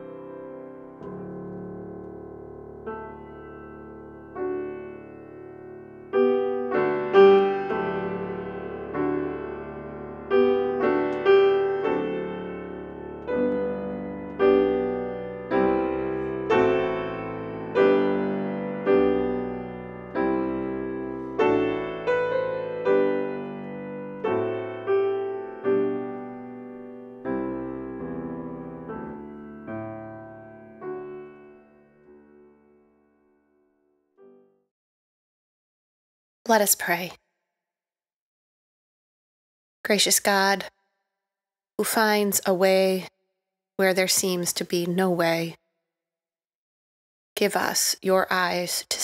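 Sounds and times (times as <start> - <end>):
slow gentle piano music: 0.0 - 34.7.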